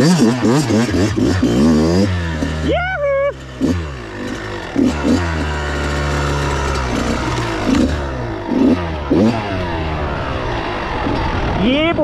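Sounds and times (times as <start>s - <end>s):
dirt bike engine revving: 0.0s - 12.0s.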